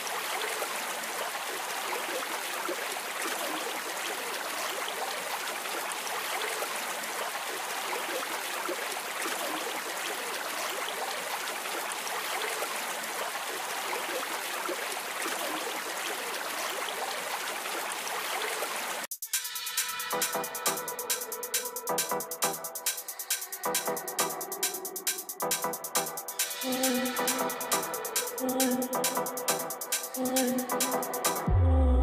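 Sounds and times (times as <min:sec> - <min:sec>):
electronic music with beat: 0:19.1 - 0:31.6.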